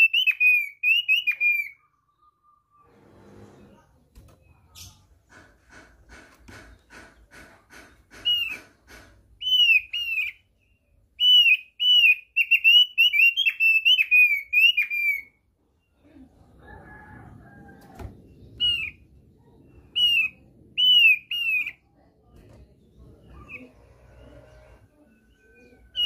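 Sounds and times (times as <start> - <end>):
bird whistling: 0.0 - 2.8, 9.4 - 10.4, 11.2 - 15.4, 19.9 - 21.8
bird chipping: 4.6 - 15.4, 18.3 - 22.1.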